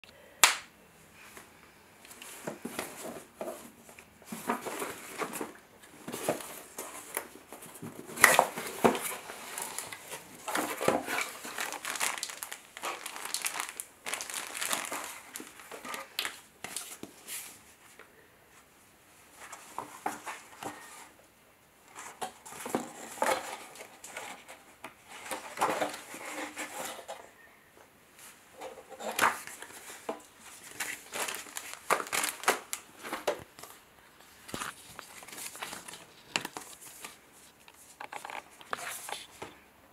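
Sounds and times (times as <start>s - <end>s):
paper booklets rustling: 2.2s - 17.6s, 28.6s - 39.6s
plastic bag crinkling: 8.2s - 16.4s, 29.0s - 39.3s.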